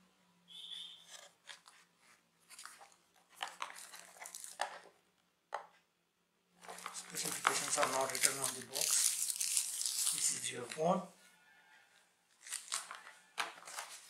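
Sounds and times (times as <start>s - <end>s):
plastic wrapper crinkling: 2.5s - 4.9s, 6.6s - 11.0s, 12.3s - 14.0s
cardboard box rustling: 6.6s - 8.6s.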